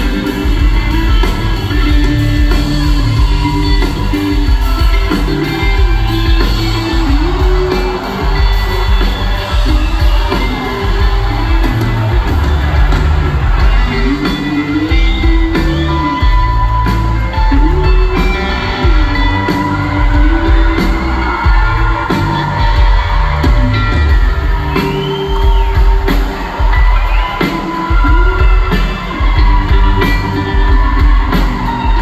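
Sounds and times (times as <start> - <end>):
bass guitar: 0.0 - 32.0
drums: 0.0 - 32.0
electric guitars: 0.0 - 32.0.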